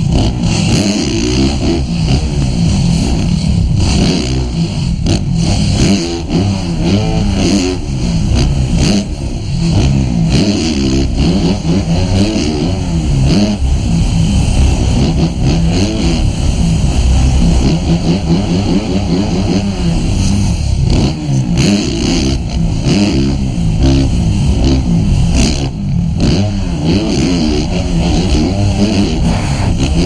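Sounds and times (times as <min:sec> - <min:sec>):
motorcycle engine revving: 0:00.0 - 0:30.0.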